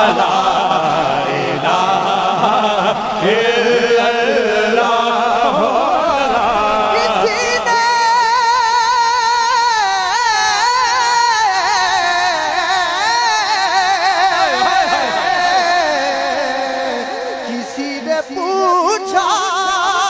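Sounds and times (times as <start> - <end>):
men singing through loudspeakers: 0.0 - 20.0.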